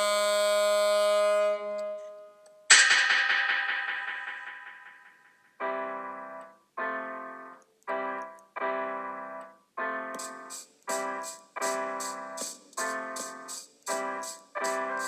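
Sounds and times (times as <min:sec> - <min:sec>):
keyboard playing piano chords: 0:05.6 - 0:15.0
fast high-pitched ticking: 0:10.2 - 0:15.0.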